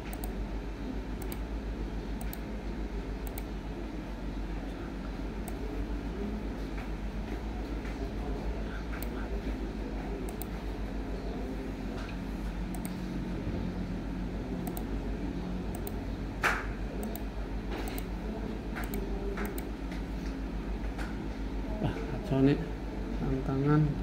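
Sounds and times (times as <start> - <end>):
steady low hum: 0.0 - 24.0
laptop keys and mouse clicking: 10.3 - 10.5.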